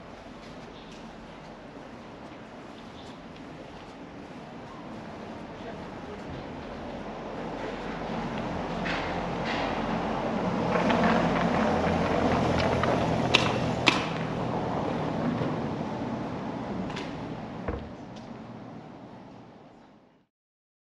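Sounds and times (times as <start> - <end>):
traffic rumble: 0.0 - 20.3
low engine hum: 5.5 - 19.8.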